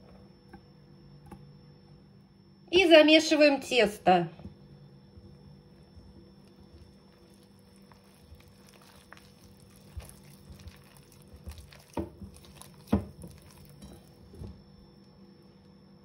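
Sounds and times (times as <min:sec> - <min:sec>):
dough stirring in a bowl: 0:04.4 - 0:15.8.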